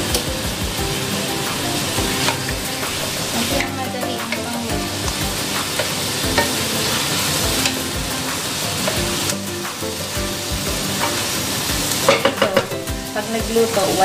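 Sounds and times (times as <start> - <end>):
food sizzling in a wok: 0.0 - 14.0
spatula knocking against pan: 12.1 - 12.9.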